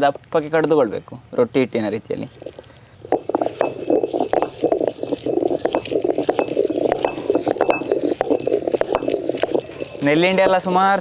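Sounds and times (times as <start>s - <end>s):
pestle crushing in stone mortar: 2.3s - 11.0s.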